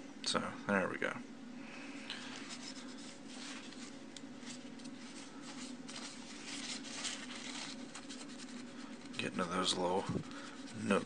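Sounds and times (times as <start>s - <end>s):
steady low hum: 0.0s - 11.0s
cloth rubbing on plastic: 2.4s - 11.0s.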